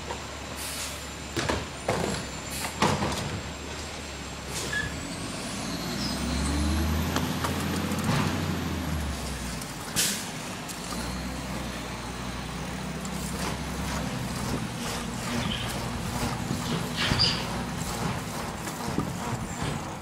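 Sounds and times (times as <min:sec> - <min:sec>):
garbage truck engine humming: 0:00.0 - 0:20.0
air brake hiss: 0:00.6 - 0:01.0, 0:10.0 - 0:10.4.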